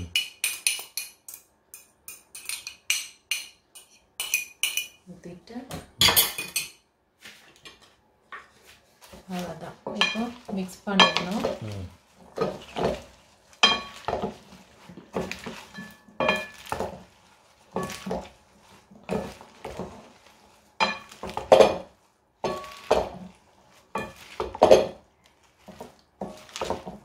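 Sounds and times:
salad leaves rustling and sloshing: 7.2s - 27.0s.

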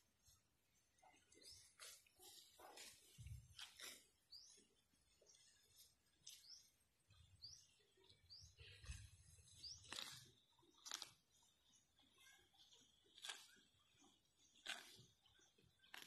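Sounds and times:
cow tearing grass: 1.6s - 4.8s, 8.7s - 11.5s, 13.0s - 15.2s, 15.8s - 16.0s
bird chirping: 3.6s - 16.0s.

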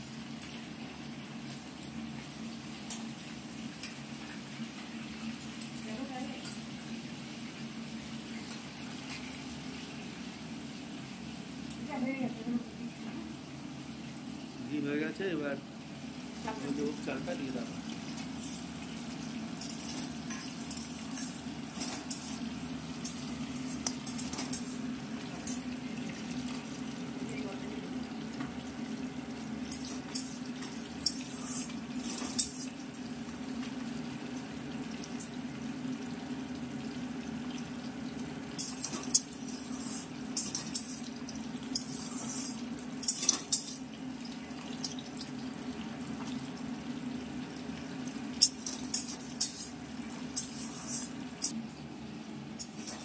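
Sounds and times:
metal spatula scraping pan: 41.8s - 43.8s, 50.4s - 51.2s.

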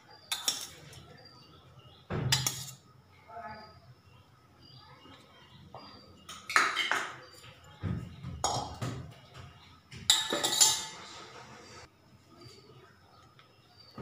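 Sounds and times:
utensils clattering against metal pot: 0.2s - 1.0s, 2.3s - 2.8s, 10.0s - 11.5s.

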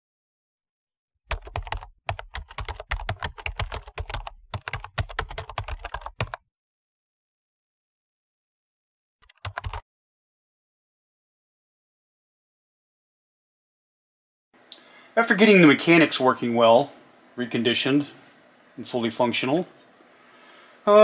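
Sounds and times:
typing on computer keyboard: 1.3s - 6.4s, 9.2s - 9.8s.

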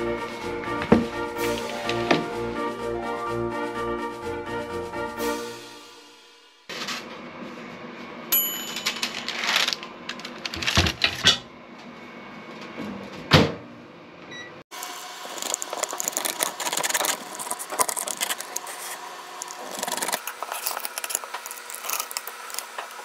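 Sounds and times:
pizza cutter crunching through crust: 15.2s - 23.0s.

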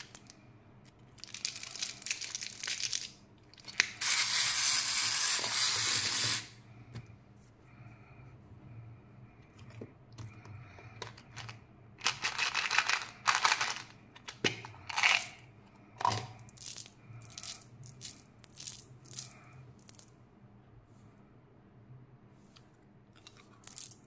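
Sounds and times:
gum pieces rattling in tube: 1.2s - 3.9s, 11.0s - 15.4s, 16.4s - 20.1s, 23.2s - 24.0s.

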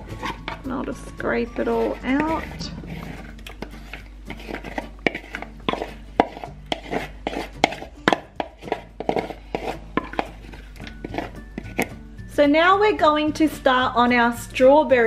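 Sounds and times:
spatula scraping a bowl: 0.0s - 12.1s
spatula tapping a bowl: 3.3s - 12.0s.

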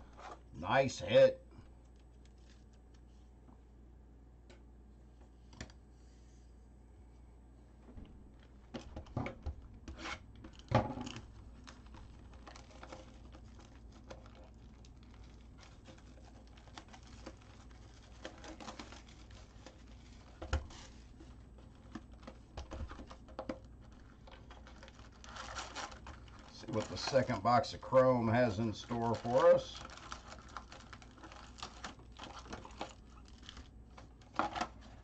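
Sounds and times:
packaging tearing: 10.0s - 20.4s, 23.8s - 27.4s, 28.6s - 35.0s
card packs rustling: 10.0s - 35.0s.

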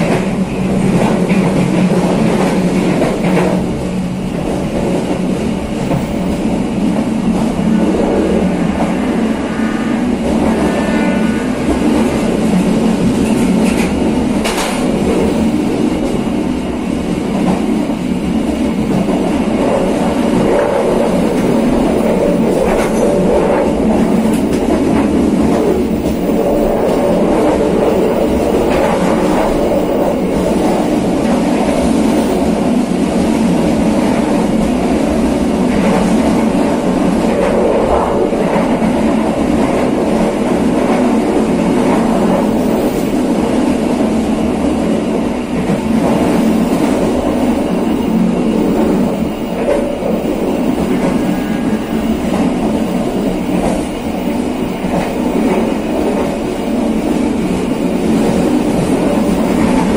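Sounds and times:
train wheels rumbling on rails: 0.0s - 59.9s.

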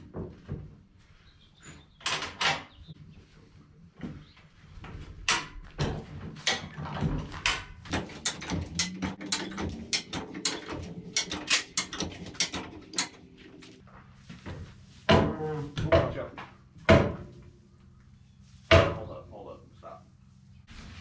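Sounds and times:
metal knocks: 5.3s - 13.8s, 15.1s - 17.4s
jack ratcheting metal clicks: 7.9s - 13.3s.

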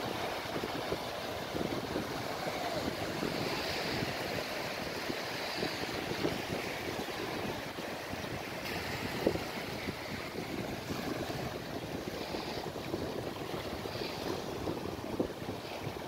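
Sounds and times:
small waves breaking: 0.0s - 16.0s
wind buffeting microphone: 0.0s - 16.0s.

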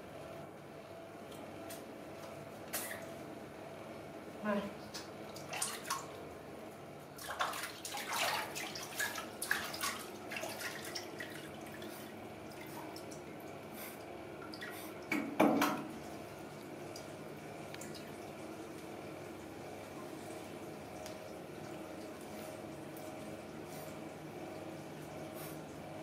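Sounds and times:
water splashing in a sink: 4.8s - 6.2s, 7.1s - 26.0s.

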